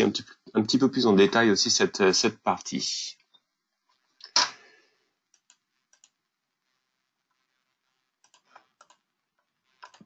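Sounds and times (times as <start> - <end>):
computer mouse clicks: 5.3 - 6.3, 8.2 - 10.0.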